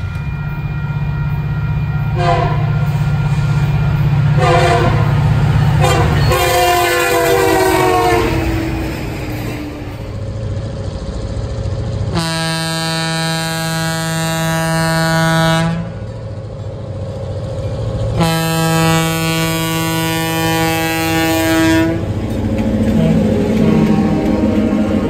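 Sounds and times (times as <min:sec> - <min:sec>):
train engines rumbling: 0:00.0 - 0:25.0
locomotive air horn blasts: 0:02.1 - 0:03.0, 0:04.3 - 0:05.2, 0:05.8 - 0:10.0, 0:12.1 - 0:16.0, 0:18.1 - 0:22.1.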